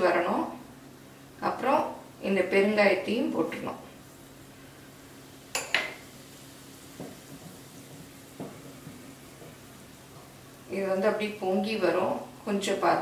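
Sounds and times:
hot oil sizzling in a pan: 0:00.0 - 0:13.0
metallic clink on pan: 0:05.5 - 0:06.0
soft knocks: 0:07.0 - 0:09.6.

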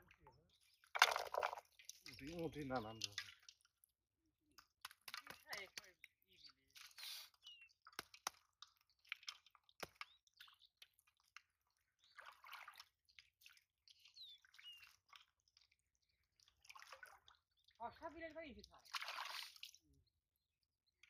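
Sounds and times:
wet clicks and squelches: 0:00.8 - 0:17.7
bird chirps: 0:05.2 - 0:07.8, 0:09.9 - 0:10.8, 0:13.9 - 0:15.0.

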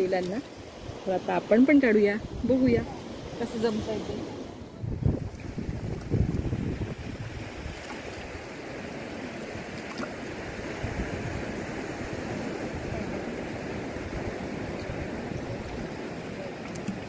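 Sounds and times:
sea surf rushing: 0:00.0 - 0:17.0.

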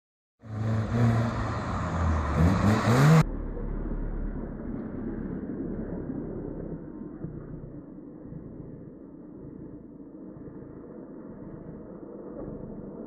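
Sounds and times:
car engine revving hard: 0:00.4 - 0:03.2
dull engine rumble: 0:00.4 - 0:13.0.

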